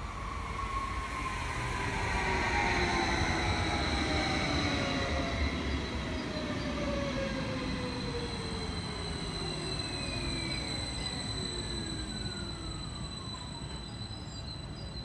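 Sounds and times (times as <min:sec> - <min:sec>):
train passing at speed: 0:00.0 - 0:15.0
whines sliding down in pitch: 0:06.5 - 0:15.0.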